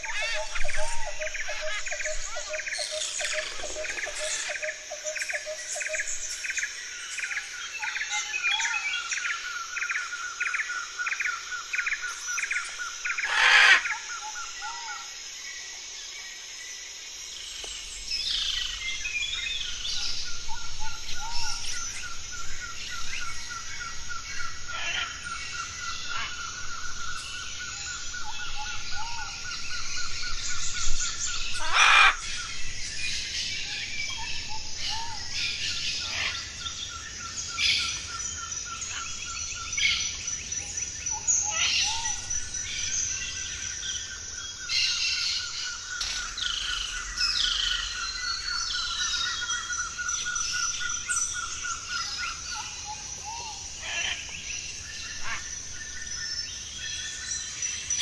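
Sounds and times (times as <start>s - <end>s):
loud short bird calls: 13.1s - 14.1s, 31.6s - 32.2s.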